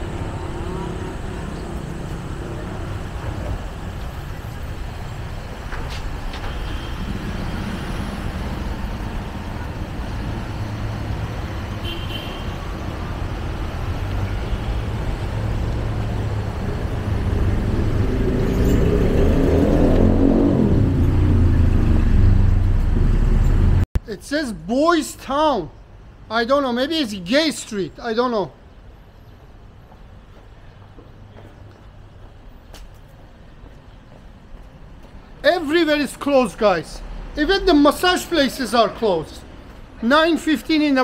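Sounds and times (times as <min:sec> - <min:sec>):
street traffic: 0:00.0 - 0:41.0
approaching vehicle engine: 0:15.1 - 0:23.8.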